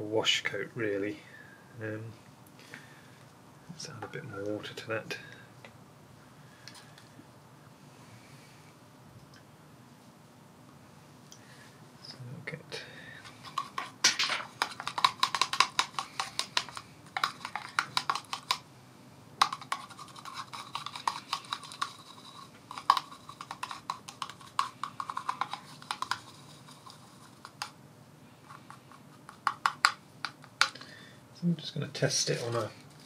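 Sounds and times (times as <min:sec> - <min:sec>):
paintbrush clicking in plastic pot: 0:13.5 - 0:18.6, 0:19.4 - 0:27.8, 0:28.5 - 0:30.9.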